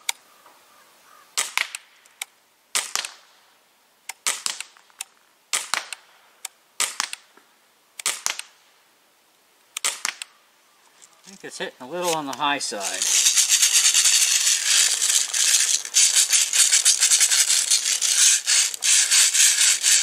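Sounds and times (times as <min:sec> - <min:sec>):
bb rifle shots cracking: 0:02.8 - 0:03.2, 0:04.2 - 0:04.8, 0:05.5 - 0:06.0, 0:06.8 - 0:07.2, 0:08.0 - 0:08.5, 0:09.8 - 0:10.3.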